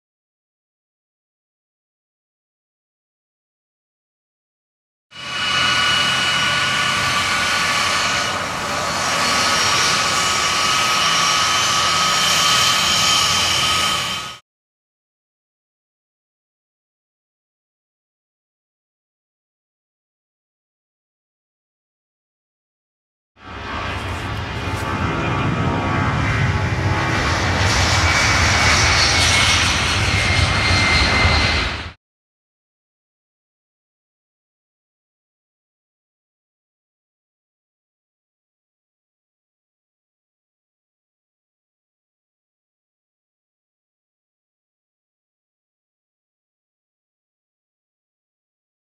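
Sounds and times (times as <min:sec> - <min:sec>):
jet engines at high power: 0:05.1 - 0:14.4, 0:23.4 - 0:32.0.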